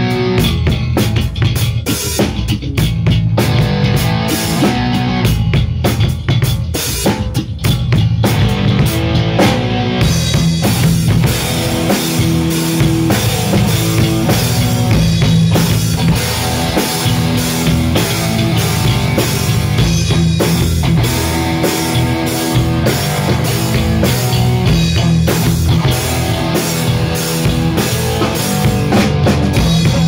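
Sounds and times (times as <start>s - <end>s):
drum kit beat: 0.0s - 30.0s
electric guitar chords: 0.0s - 30.0s.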